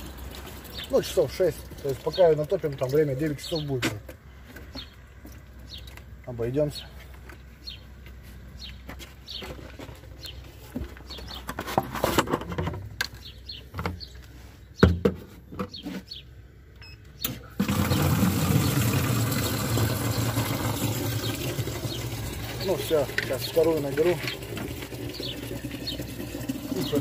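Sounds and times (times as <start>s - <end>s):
water filling a plastic bottle: 0.0s - 3.1s, 17.6s - 27.0s
birds chirping: 0.0s - 12.0s, 12.9s - 27.0s.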